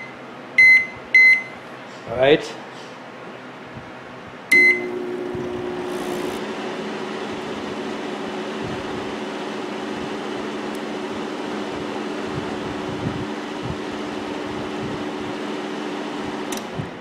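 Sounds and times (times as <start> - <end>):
keypad beep: 0.0 - 1.6, 4.5 - 4.9
microwave oven humming: 4.4 - 17.0.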